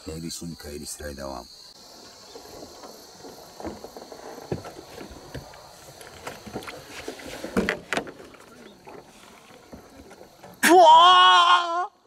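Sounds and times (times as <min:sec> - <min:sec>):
light knocks and clicks on boat: 0:02.3 - 0:10.6.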